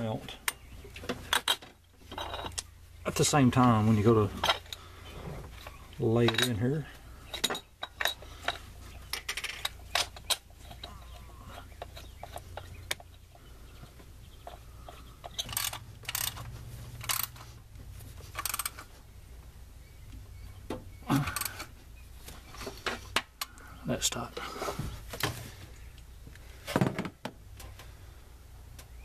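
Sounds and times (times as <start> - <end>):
low steady hum: 0.0 - 29.0
metallic clicks and scrapes of bolts: 0.5 - 5.0, 5.6 - 13.4, 14.4 - 17.6, 18.2 - 18.9, 21.1 - 21.8.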